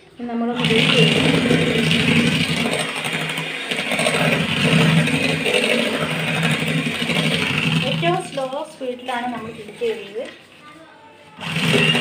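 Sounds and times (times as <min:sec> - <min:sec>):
electric hand mixer humming: 0:00.4 - 0:10.3, 0:11.4 - 0:12.0.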